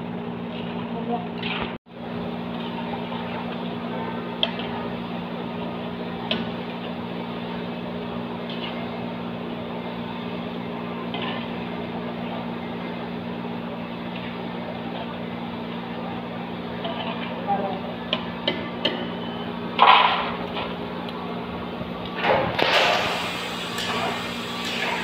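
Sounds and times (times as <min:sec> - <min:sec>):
oil sizzling: 0:22.6 - 0:25.0.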